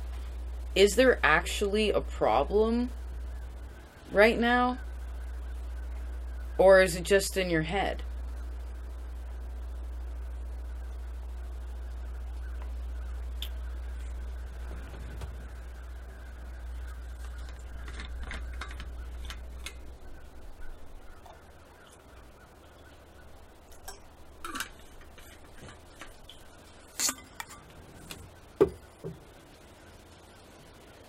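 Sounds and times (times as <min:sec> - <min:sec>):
low rumble: 0:07.7 - 0:21.7
small clicks and rustles: 0:17.0 - 0:19.9.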